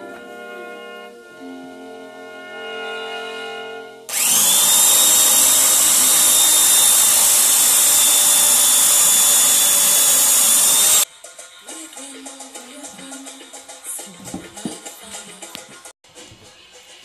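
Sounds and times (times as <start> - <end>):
power drill whining: 4.1 - 11.0.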